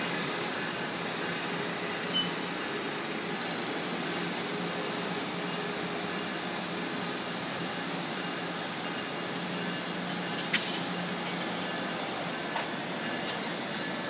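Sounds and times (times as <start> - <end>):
train rolling past: 0.0 - 14.0
train wheels squealing: 1.9 - 2.6, 8.7 - 14.0.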